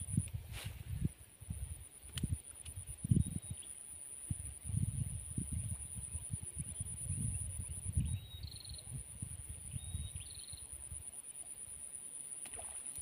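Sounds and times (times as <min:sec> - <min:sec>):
wind on microphone: 0:00.0 - 0:03.6, 0:04.2 - 0:10.3.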